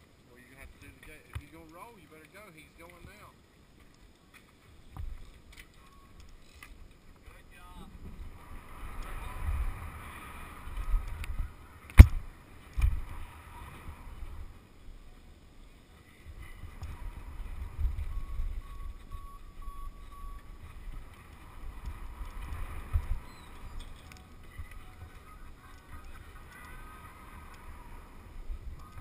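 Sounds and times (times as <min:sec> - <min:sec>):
wind buffeting microphone: 0:16.2 - 0:29.0.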